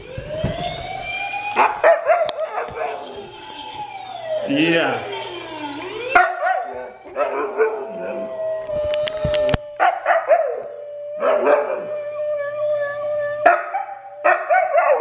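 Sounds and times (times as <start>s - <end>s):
dogs howling: 1.5s - 3.2s, 5.6s - 15.0s.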